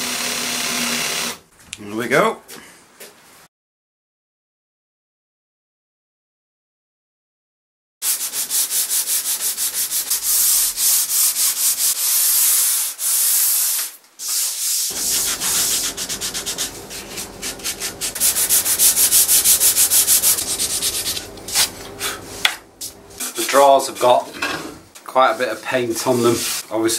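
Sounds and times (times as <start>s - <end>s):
sanding block rasping on wood: 8.0s - 13.7s, 14.3s - 23.2s.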